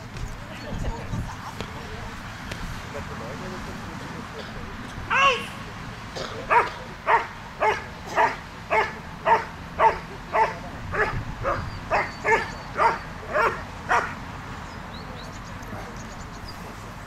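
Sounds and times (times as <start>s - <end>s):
dog barking loudly: 6.5s - 14.2s.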